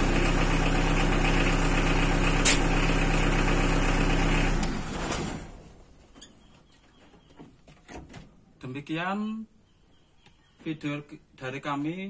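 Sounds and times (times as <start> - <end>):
pickup engine running: 0.0 - 5.7
sharp click: 2.4 - 2.7.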